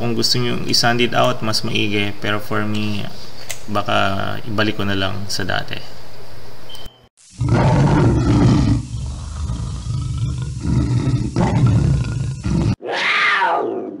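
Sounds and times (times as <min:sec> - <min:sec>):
big cat roaring: 0:07.4 - 0:14.0.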